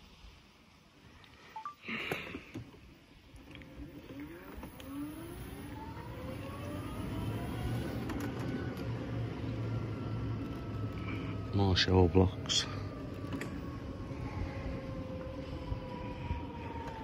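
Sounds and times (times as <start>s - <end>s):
vehicle engine rising in pitch: 3.9s - 17.0s.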